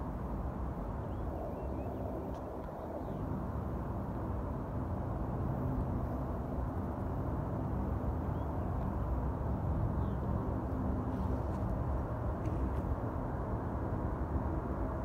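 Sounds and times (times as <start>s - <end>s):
distant jet engine rumble: 0.0s - 15.0s.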